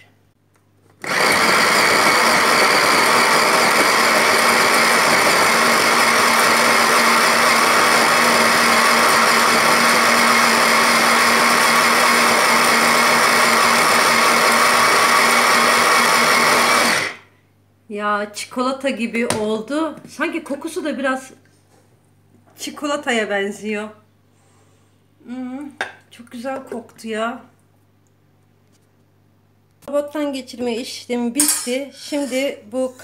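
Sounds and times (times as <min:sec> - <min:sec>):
food chopper motor running: 0:01.0 - 0:17.2.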